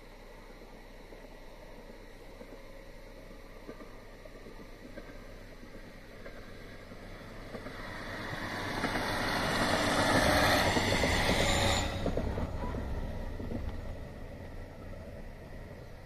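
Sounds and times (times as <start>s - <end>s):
diesel railcar passing: 0.0s - 16.0s
wheels on rails: 0.0s - 16.0s.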